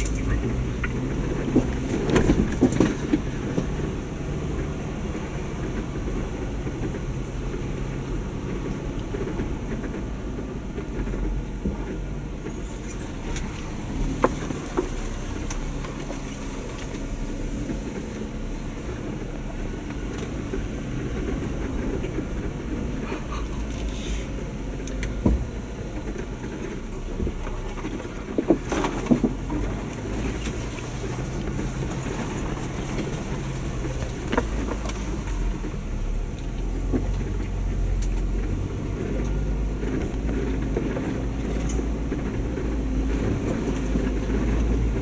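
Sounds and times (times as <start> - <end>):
car body rattling and knocking: 0.0 - 45.0
low engine drone: 0.0 - 45.0.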